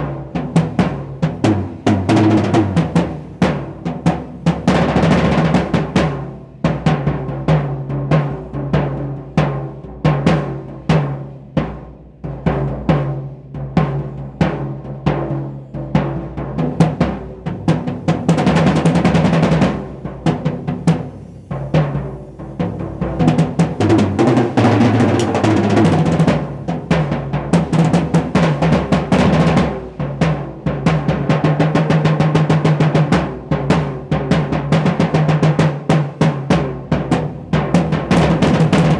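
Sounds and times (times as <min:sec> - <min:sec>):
drum kit solo: 0:00.0 - 0:38.9.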